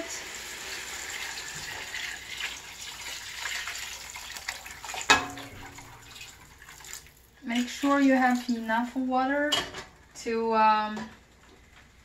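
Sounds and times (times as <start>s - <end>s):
water pouring into a pot: 0.0s - 8.7s.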